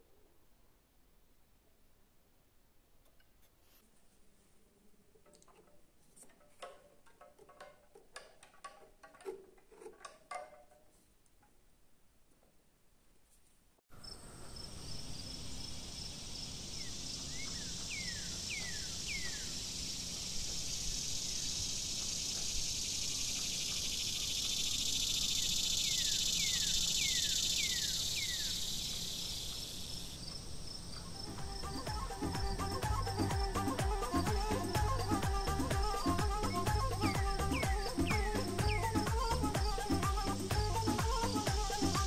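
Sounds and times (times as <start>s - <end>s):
insect chorus chirping: 13.9s - 42.0s
bird whistling: 16.8s - 19.6s, 20.7s - 30.2s, 30.9s - 42.0s.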